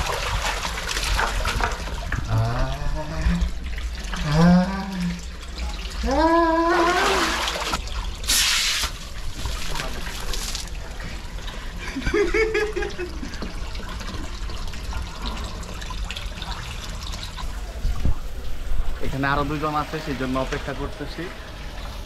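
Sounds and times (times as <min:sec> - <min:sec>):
water trickling into a pool: 0:00.0 - 0:22.0
person calling out: 0:06.0 - 0:07.5
loud splashing: 0:06.6 - 0:10.7.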